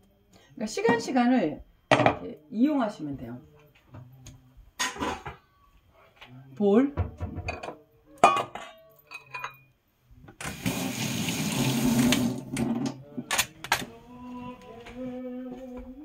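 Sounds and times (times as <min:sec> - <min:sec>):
tap water running: 0:10.4 - 0:12.6.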